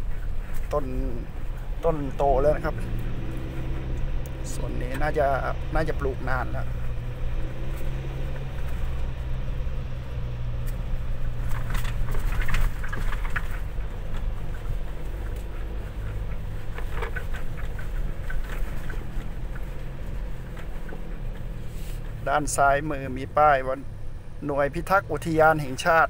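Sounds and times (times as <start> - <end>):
engine and road rumble: 0.0 - 26.0
gravel crackling and rattling: 0.0 - 26.0.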